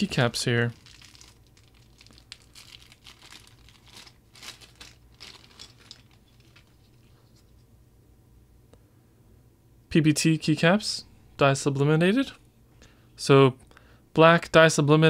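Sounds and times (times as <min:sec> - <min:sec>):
plastic bag crinkling: 0:00.1 - 0:07.6.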